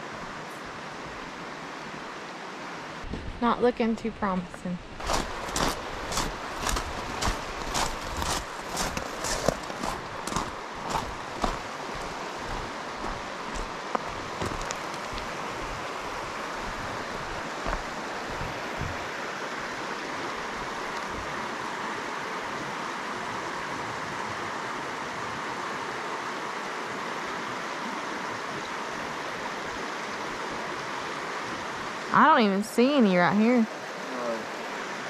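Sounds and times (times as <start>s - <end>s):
rushing stream water: 0.0s - 35.0s
soft low thumps: 4.4s - 19.1s.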